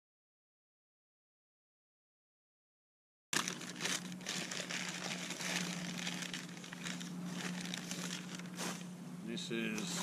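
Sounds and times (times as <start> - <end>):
newspaper crinkling and rustling: 3.4 - 8.9.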